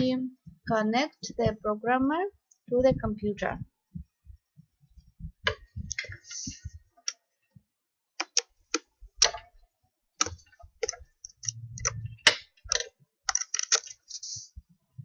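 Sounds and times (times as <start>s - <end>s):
plastic clicks and knocks: 5.4s - 7.2s, 8.2s - 9.6s, 10.2s - 14.0s
short low rumble: 11.5s - 12.2s.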